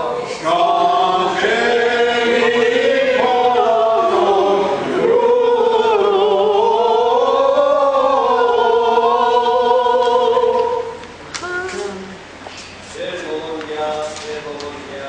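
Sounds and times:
choir singing a hymn: 0.0 - 11.0.

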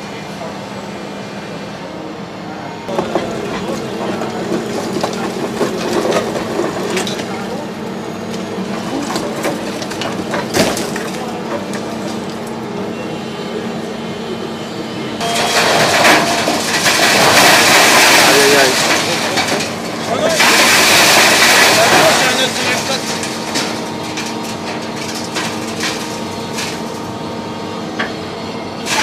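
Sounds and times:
excavator running: 0.0 - 29.0
concrete breaking: 2.9 - 7.6, 8.7 - 12.5, 15.2 - 27.0.

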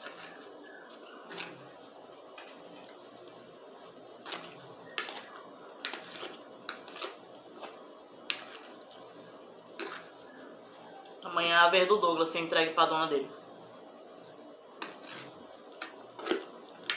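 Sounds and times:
fork scraping plastic plate: 0.0 - 3.1, 4.2 - 8.8, 9.8 - 10.2, 14.8 - 16.9
faint steady hum: 0.0 - 16.9.

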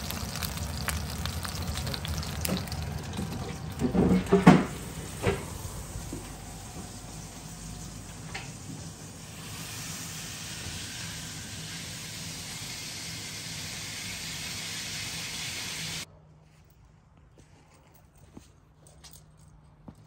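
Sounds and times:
low hum: 0.0 - 9.7
food frying in a pan: 0.0 - 16.0.

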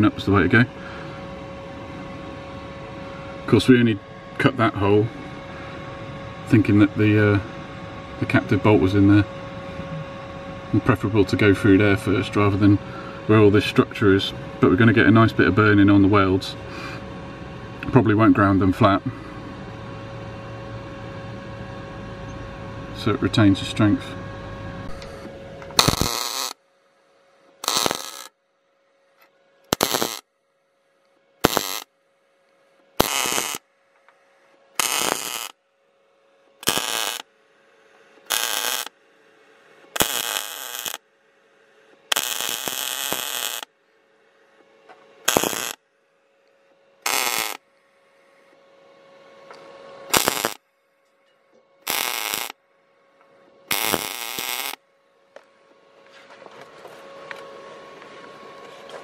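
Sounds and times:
faint steady hum: 0.0 - 59.0
welding arc bursts: 25.8 - 26.6, 27.6 - 28.3, 29.7 - 30.2, 31.4 - 31.9, 33.0 - 33.6, 34.8 - 35.6, 36.6 - 37.3, 38.3 - 38.9, 39.9 - 41.0, 42.1 - 43.7, 45.2 - 45.8, 47.0 - 47.6, 50.1 - 50.6, 51.8 - 52.6, 53.7 - 54.8.

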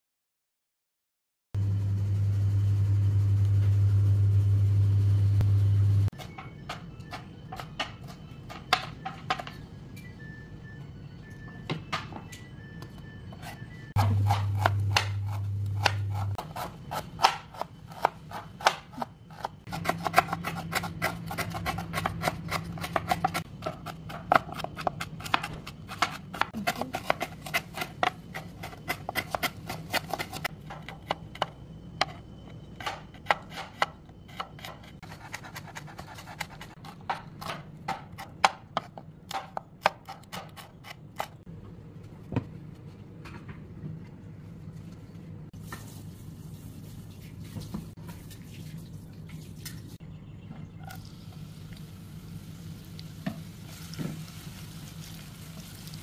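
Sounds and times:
low hum: 1.6 - 7.2, 9.6 - 16.4
knife chopping on wooden board: 14.0 - 32.2.

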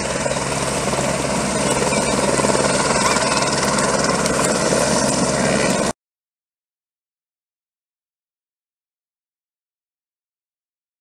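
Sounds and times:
helicopter rotor beating: 0.0 - 6.0.

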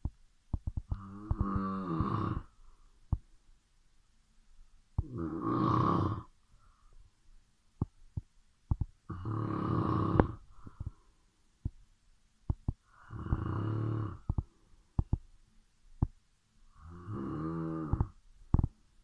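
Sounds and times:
person snoring: 0.9 - 2.6, 5.0 - 6.3, 9.1 - 10.4, 12.8 - 14.4, 16.7 - 18.2.

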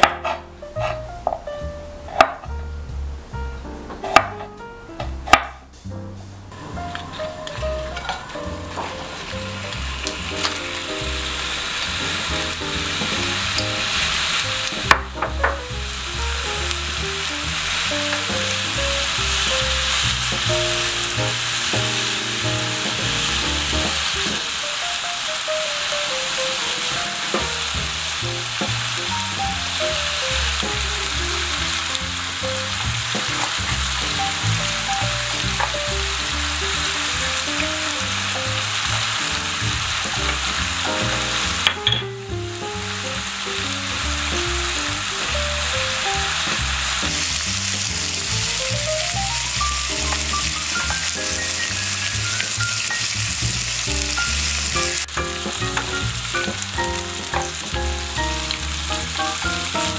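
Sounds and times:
light background music: 0.0 - 24.6
meat sizzling in a frying pan: 6.6 - 59.9.

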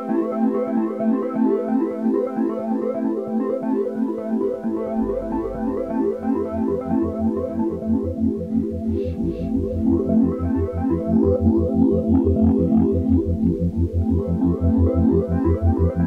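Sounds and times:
low bass part: 4.9 - 7.2, 8.8 - 10.7.

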